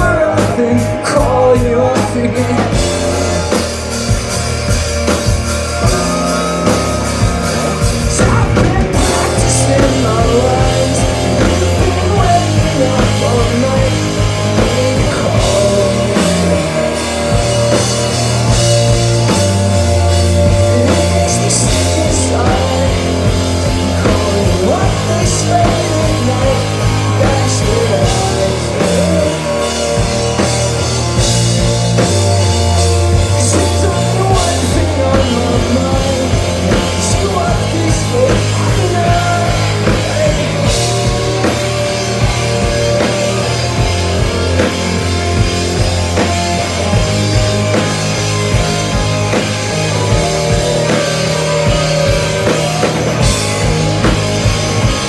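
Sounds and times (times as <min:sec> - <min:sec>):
distorted electric guitars: 0:00.0 - 0:55.0
drum kit with crashing cymbals: 0:00.0 - 0:55.0
heavy low bass notes: 0:00.0 - 0:55.0.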